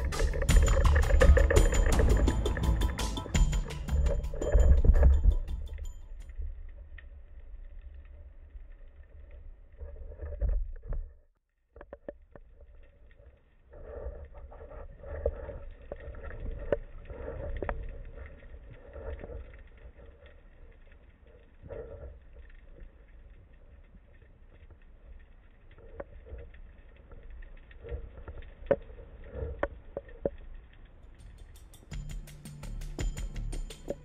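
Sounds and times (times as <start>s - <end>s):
underwater clicks: 0.0s - 5.8s
muffled underwater water rumble: 0.0s - 11.1s, 12.2s - 31.5s.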